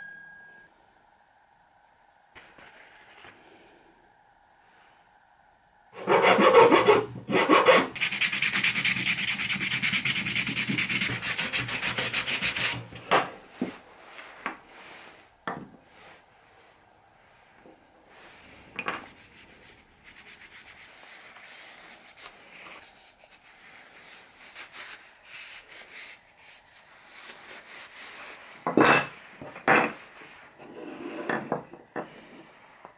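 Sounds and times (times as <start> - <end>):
sandpaper rubbing on wood: 6.0 - 12.9, 19.0 - 28.6.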